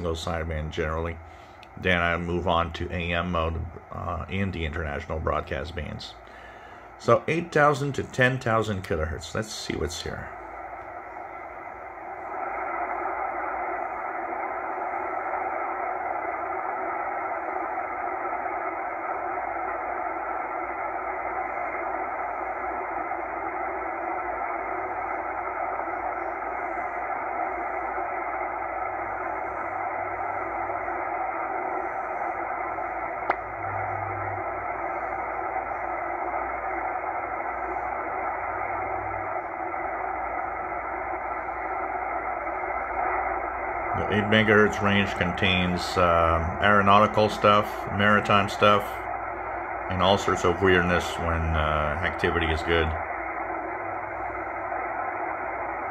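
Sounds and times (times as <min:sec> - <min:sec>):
shortwave radio hiss: 0:00.0 - 0:55.9.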